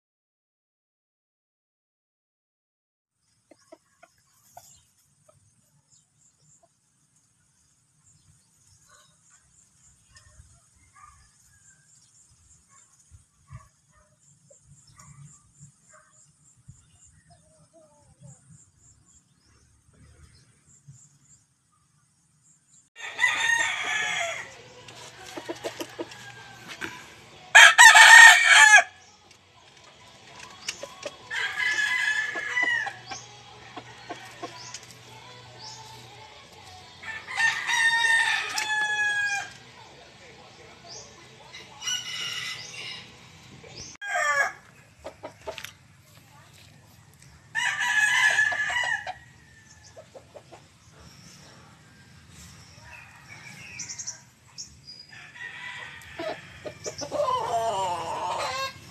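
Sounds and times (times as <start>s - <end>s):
roosters crowing: 23.0s - 29.1s, 30.4s - 39.8s, 40.8s - 45.7s, 47.4s - 50.4s, 51.2s - 58.9s.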